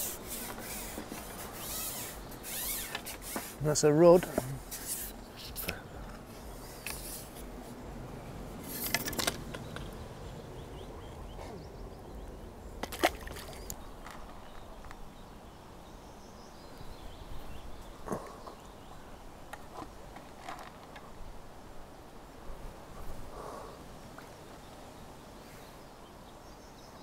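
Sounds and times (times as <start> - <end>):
water splashing and trickling: 6.4 - 14.8.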